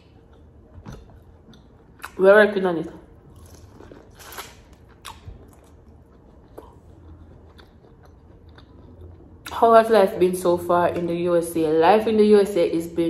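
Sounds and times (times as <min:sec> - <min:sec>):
person chewing corn: 0:03.1 - 0:09.5.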